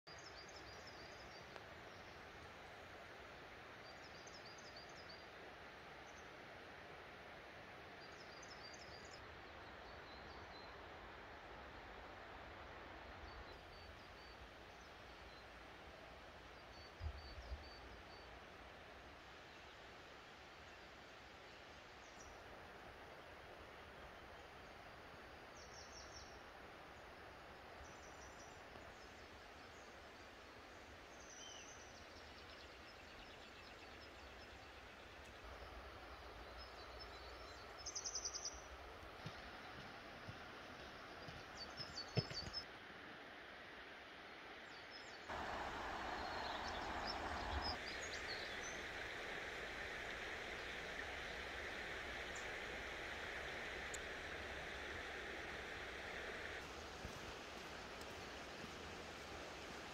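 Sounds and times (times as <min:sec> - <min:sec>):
small birds chirping: 0:31.1 - 0:42.6, 0:44.7 - 0:59.9
stream water rushing: 0:34.2 - 0:59.9.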